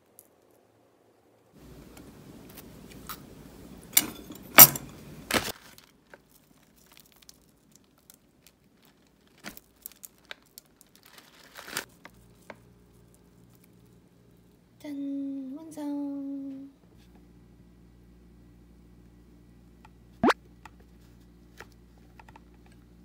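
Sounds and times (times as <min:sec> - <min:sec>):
packaging crinkling: 0:05.4 - 0:13.8
low steady hum: 0:11.9 - 0:23.0.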